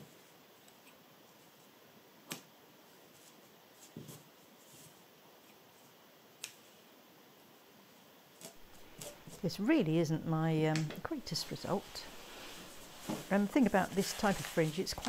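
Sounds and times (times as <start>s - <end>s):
soft handling sounds: 2.9s - 6.0s, 8.4s - 15.0s.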